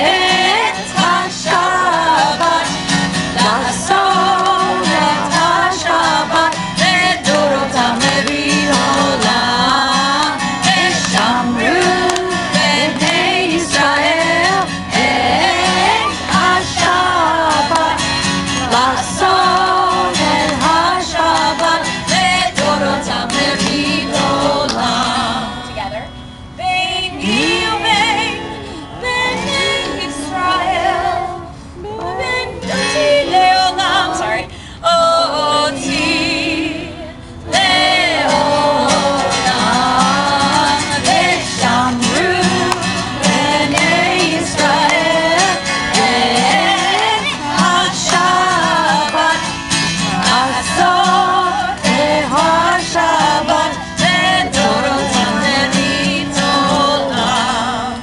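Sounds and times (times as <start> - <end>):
woman singing: 0.0 - 18.0, 26.6 - 58.0
children singing along: 0.0 - 25.5, 27.1 - 58.0
acoustic guitar strumming: 0.0 - 58.0.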